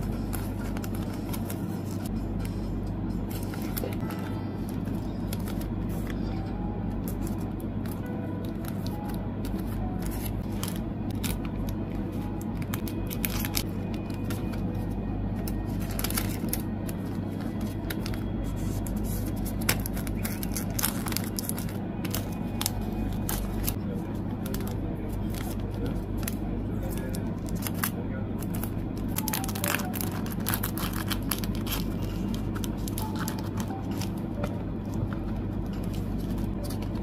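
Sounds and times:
music playing: 0:00.0 - 0:27.3, 0:28.1 - 0:37.0
plastic sleeves crinkling: 0:07.0 - 0:23.8, 0:24.4 - 0:37.0.

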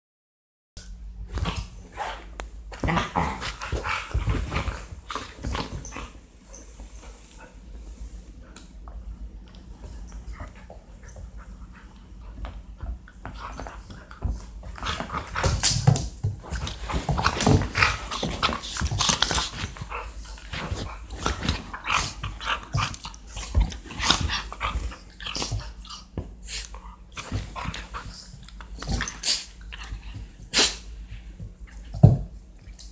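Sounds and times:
dogs growling: 0:01.5 - 0:04.8.

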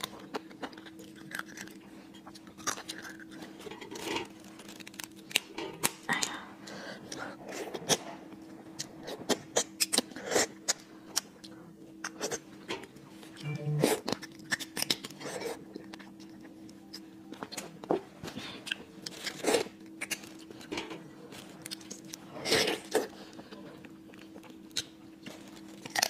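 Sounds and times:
crunching crab shell: 0:00.0 - 0:06.1, 0:14.0 - 0:17.0, 0:24.2 - 0:26.0.

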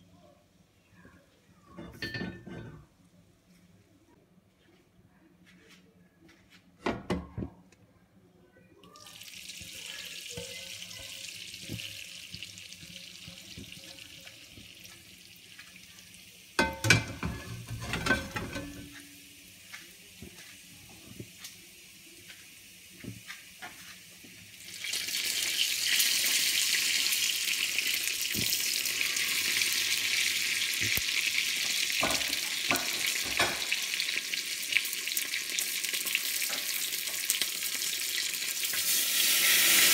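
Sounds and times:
oil sizzling on hot plate: 0:09.0 - 0:39.9.

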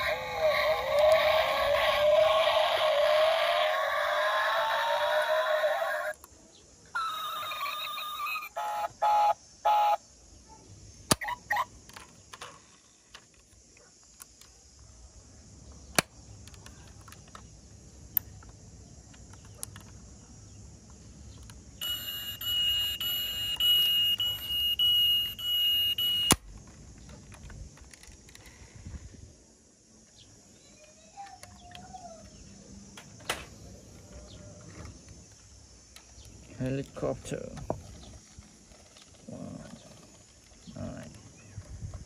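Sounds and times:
toy electronic beeps: 0:07.0 - 0:10.0, 0:21.8 - 0:26.4
warbling alarm tone: 0:21.8 - 0:26.3.

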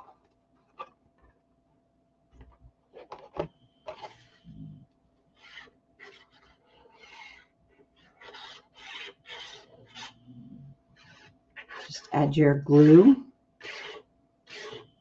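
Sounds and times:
glue bottle tip scratching card: 0:08.1 - 0:10.2, 0:13.6 - 0:14.9.

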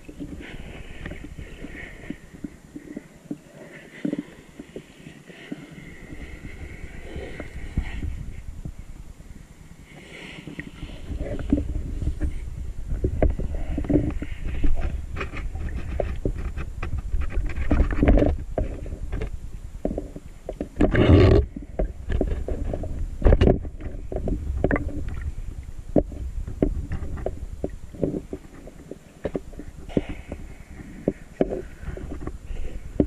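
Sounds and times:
underwater churning water rumble: 0:00.0 - 0:33.0
underwater clicks and knocks: 0:10.5 - 0:33.0.

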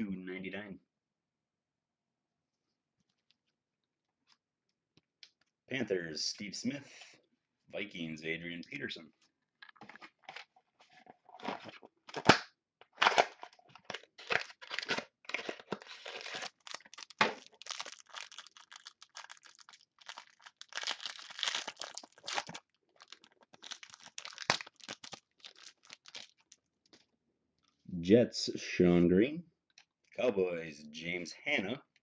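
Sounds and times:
foil wrapper tearing and crinkling: 0:14.0 - 0:26.6.

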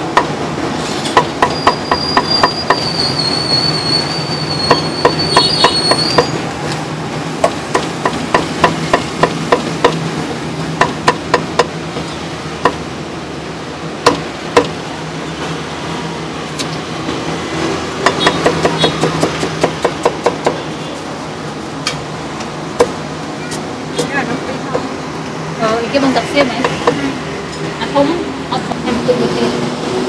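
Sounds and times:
cleaver chopping on wooden block: 0:07.4 - 0:10.0, 0:14.0 - 0:14.7, 0:18.0 - 0:20.6.

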